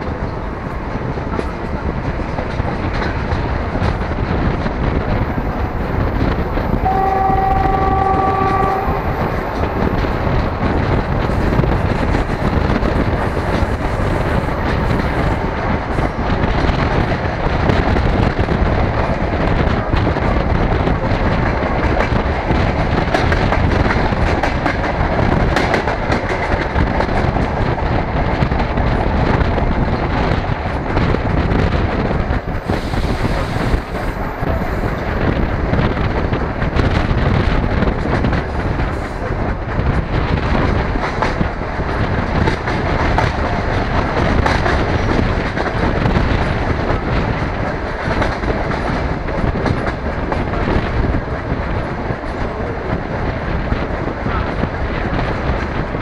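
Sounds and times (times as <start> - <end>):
train rumble: 0.0 - 56.0.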